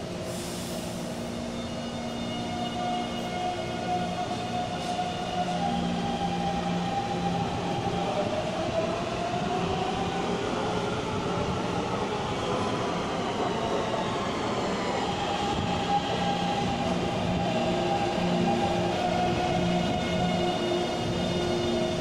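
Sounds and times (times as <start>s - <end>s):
train wheels rushing on rail: 0.0s - 22.0s.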